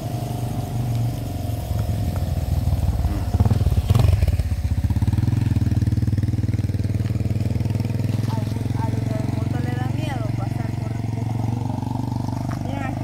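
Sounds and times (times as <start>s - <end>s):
vehicle engine running: 0.0s - 13.0s.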